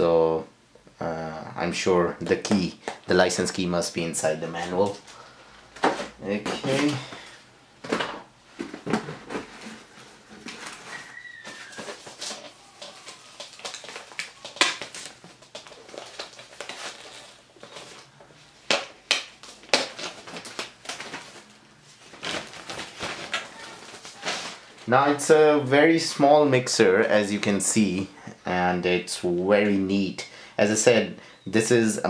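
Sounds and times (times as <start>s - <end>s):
cardboard scraping: 8.6s - 18.1s
packaging wrapper crinkling: 9.3s - 25.0s.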